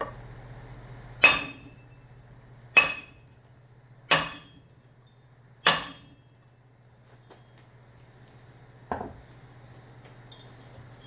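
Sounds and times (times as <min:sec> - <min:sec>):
hammer blows with metallic ring: 0:01.2 - 0:02.1, 0:02.7 - 0:06.6.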